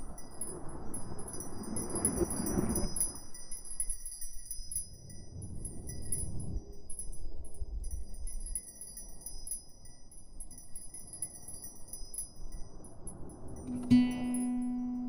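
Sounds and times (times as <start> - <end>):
chimes ringing: 7.9 - 15.0.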